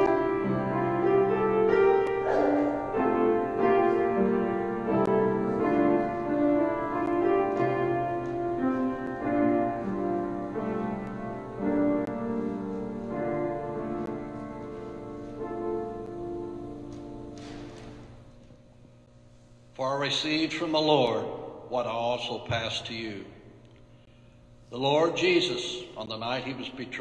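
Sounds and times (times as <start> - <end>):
slow piano piece: 0.0 - 19.1.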